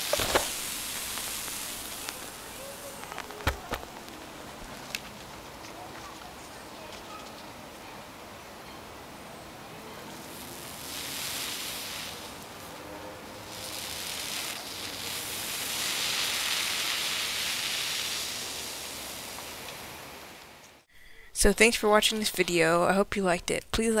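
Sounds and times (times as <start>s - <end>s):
chemical mixture hissing: 0.0s - 4.5s, 10.1s - 20.9s.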